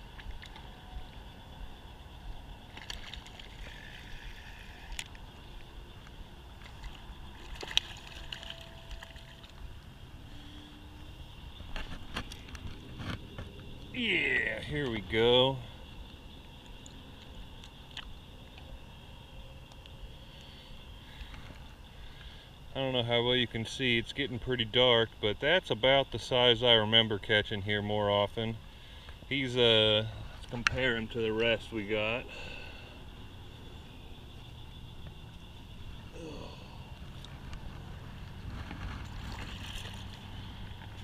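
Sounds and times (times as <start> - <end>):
faint water sloshing: 0.0 - 19.4, 28.1 - 41.0
high-pitched insect chorus: 0.0 - 41.0
steady high hum: 0.0 - 41.0
fishing rod and reel clicks: 2.7 - 9.6.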